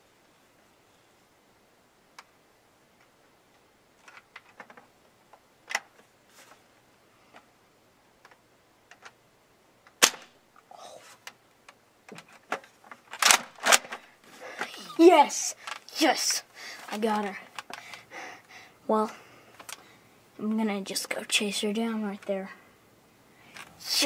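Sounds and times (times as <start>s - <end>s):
toy blaster clicks and rattles: 13.0s - 14.0s.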